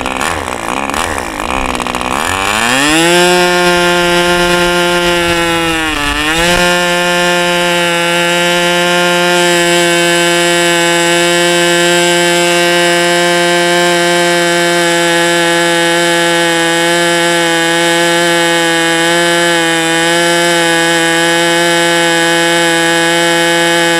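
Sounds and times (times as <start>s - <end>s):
model aircraft engine running: 0.0s - 23.9s.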